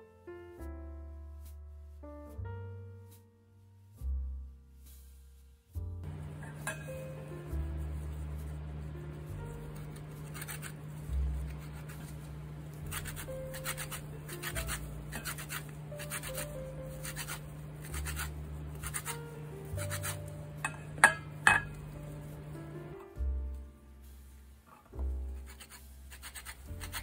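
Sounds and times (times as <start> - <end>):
peel rasping on hand grater: 7.8 - 20.3, 25.4 - 27.0.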